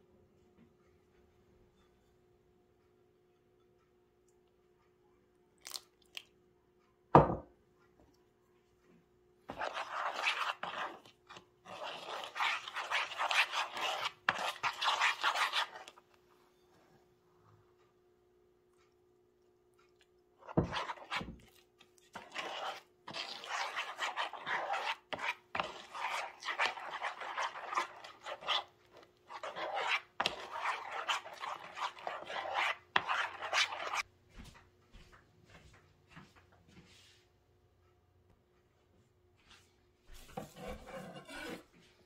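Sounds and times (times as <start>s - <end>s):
spoon scraping plastic bowl: 9.5s - 16.2s, 20.4s - 34.1s, 40.2s - 41.7s.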